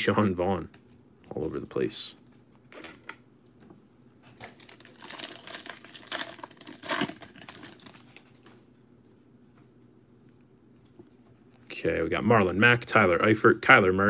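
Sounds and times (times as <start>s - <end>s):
wrapper crinkling and tearing: 4.4s - 8.6s.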